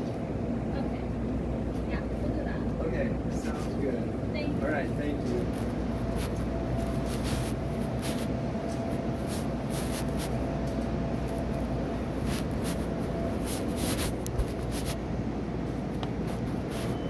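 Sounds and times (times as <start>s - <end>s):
steady low rumble: 0.0s - 16.9s
faint steady hum: 0.0s - 17.0s
phone rubbing against fabric: 5.5s - 10.5s, 11.2s - 15.1s, 16.2s - 17.0s.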